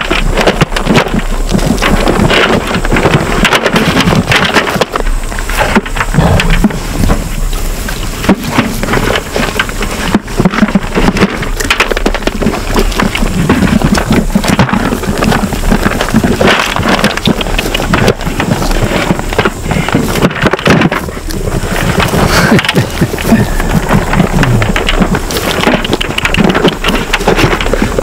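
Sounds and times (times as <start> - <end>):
sheep crunching feed pellets: 0.0 - 28.0.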